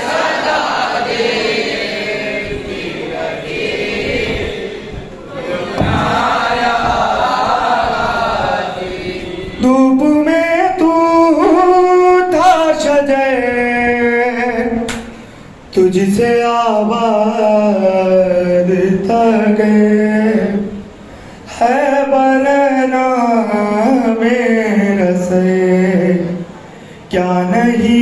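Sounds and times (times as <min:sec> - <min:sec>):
group of men chanting: 0:00.0 - 0:09.6
man singing into a microphone: 0:09.3 - 0:20.9, 0:21.5 - 0:28.0.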